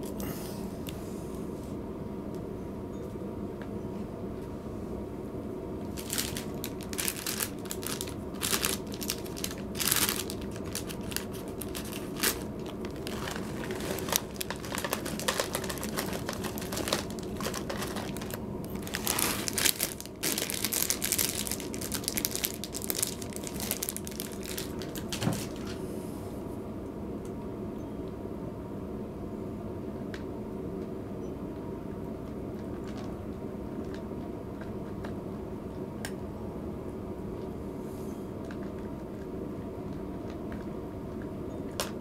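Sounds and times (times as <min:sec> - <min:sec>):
steady low hum: 0:00.0 - 0:42.0
plastic bag crinkling: 0:05.8 - 0:25.8.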